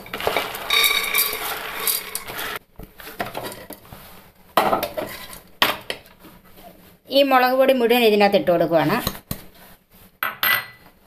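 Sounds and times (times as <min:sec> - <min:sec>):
beans rattling into metal pot: 0:00.0 - 0:02.6
pot ringing: 0:00.6 - 0:02.3.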